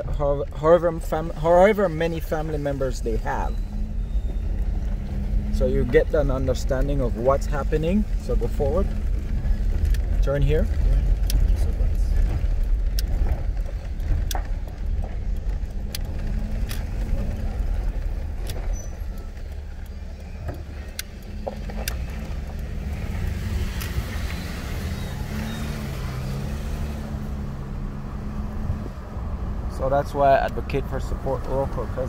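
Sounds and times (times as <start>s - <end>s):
car engine and road noise: 0.0s - 32.0s
light clicks and rattles: 4.0s - 24.8s.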